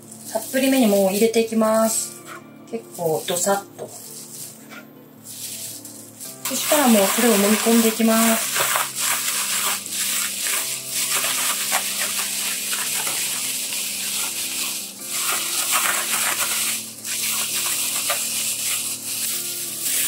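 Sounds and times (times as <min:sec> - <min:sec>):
soft background music: 0:00.0 - 0:20.0
plastic bag crinkling: 0:05.3 - 0:20.0.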